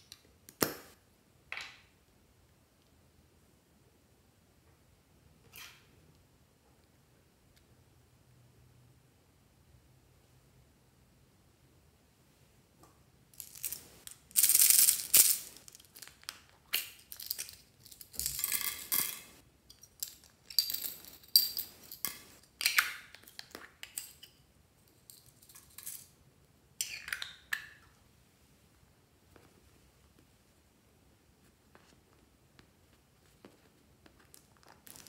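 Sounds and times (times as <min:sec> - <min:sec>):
plastic toys clattering: 0:13.4 - 0:22.3.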